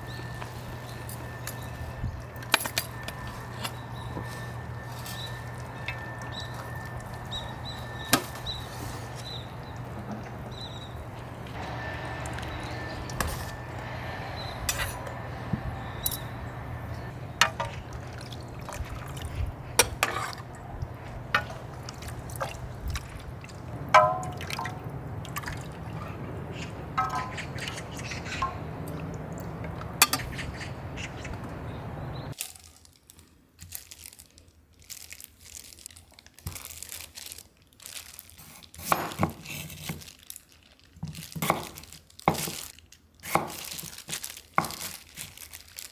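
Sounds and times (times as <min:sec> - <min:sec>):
steady low hum: 0:00.0 - 0:32.4
liquid pouring and dripping: 0:17.4 - 0:26.1
ladle clinking on bowls: 0:24.0 - 0:24.8, 0:27.0 - 0:27.6.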